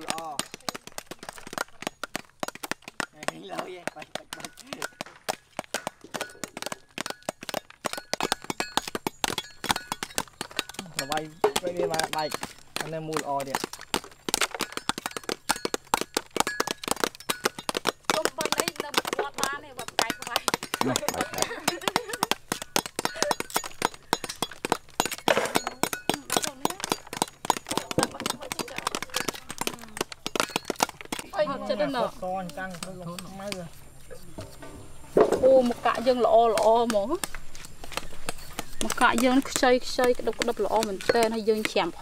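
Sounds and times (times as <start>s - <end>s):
hard shells cracking and knocking: 0.0s - 33.8s, 35.2s - 42.0s.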